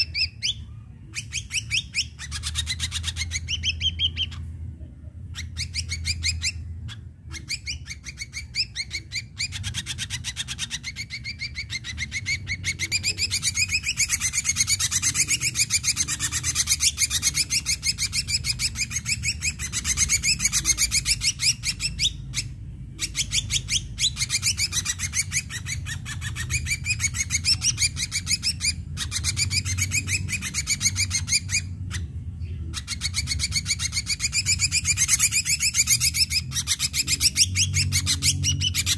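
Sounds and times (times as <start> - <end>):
bird chattering song: 0.0 - 38.9.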